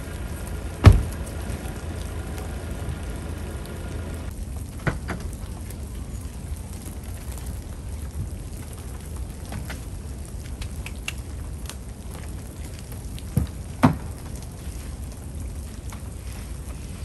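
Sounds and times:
gear knocking and clicking: 0.0 - 4.3
wet snow falling: 0.0 - 17.0
sharp thumps: 0.7 - 1.7.

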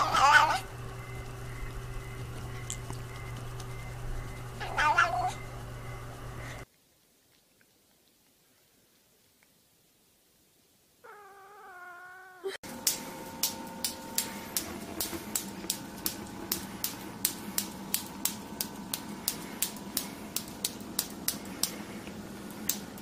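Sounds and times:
low hum: 0.0 - 6.7, 11.1 - 23.0
steady sharp clicks: 0.6 - 6.6, 12.6 - 23.0
cat meowing: 4.6 - 5.3, 11.0 - 12.6.

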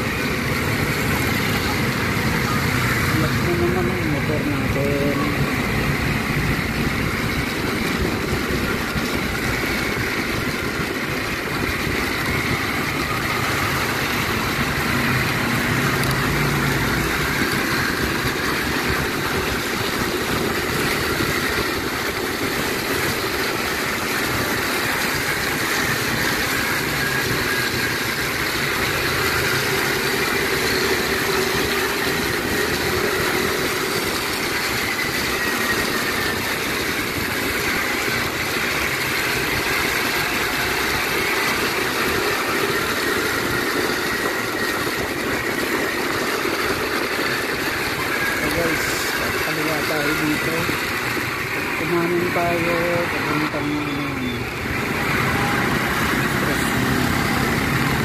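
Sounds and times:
motorcycle engine running: 0.0 - 58.0
road and wind noise: 0.0 - 58.0.

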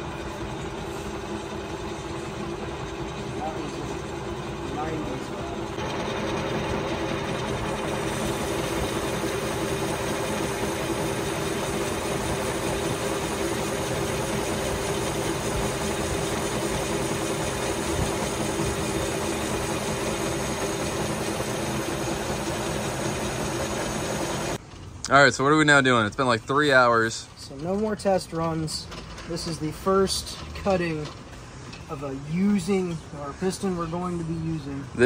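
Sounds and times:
metal lathe humming: 0.0 - 24.6.

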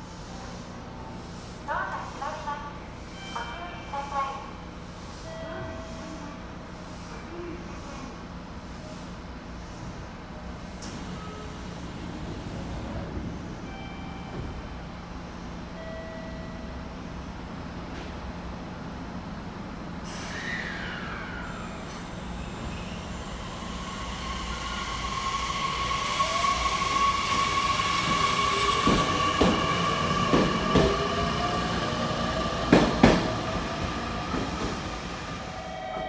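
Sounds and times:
high ringing tone: 35.4 - 36.0.

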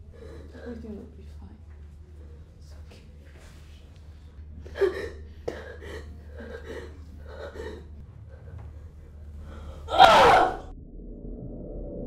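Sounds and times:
woman sobbing: 4.6 - 8.5.

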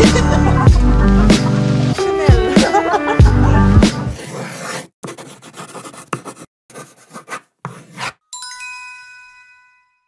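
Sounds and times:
bright multi-tone chime: 8.3 - 10.0.

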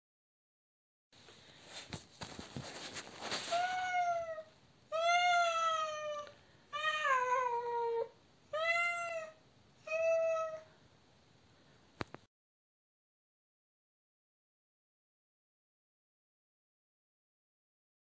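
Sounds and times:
cat meowing: 3.4 - 10.7.

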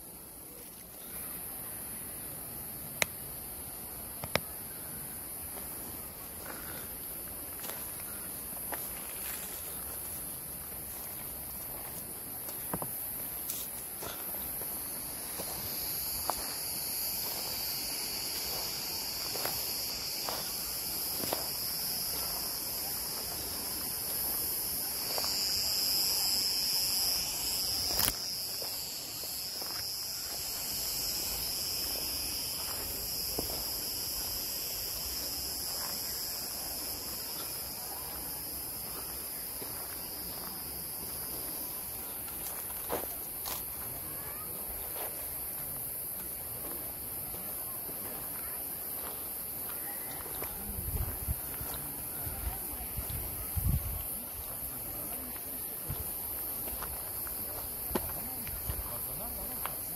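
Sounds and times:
insect chorus shrilling: 4.5 - 59.9
footsteps crunching: 5.5 - 34.3, 38.8 - 40.6, 55.3 - 59.8.

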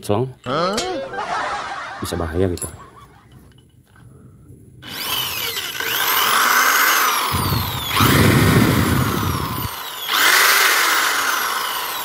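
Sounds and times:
electric drill motor whining: 4.8 - 12.0.

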